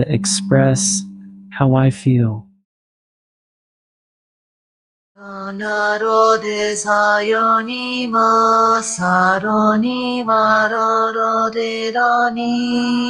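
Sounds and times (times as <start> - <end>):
steady low drone: 0.0 - 2.4
synthetic voice singing held notes: 0.0 - 2.4, 5.2 - 13.0.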